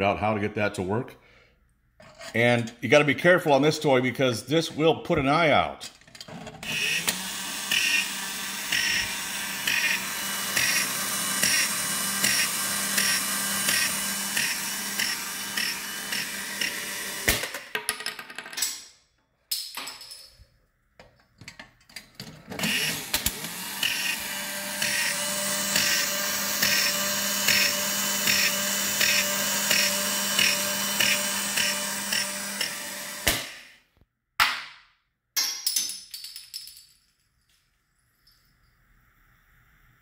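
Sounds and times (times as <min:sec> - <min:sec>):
toy motor and gears whirring: 0:06.6 - 0:16.9, 0:22.6 - 0:32.8.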